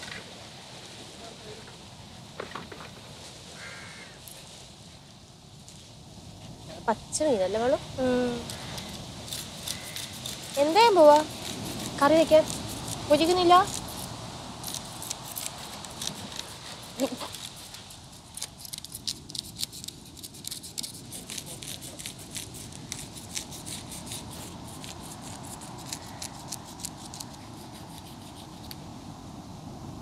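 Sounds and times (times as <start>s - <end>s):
knife scraping fish: 8.9s - 13.0s, 14.7s - 28.8s.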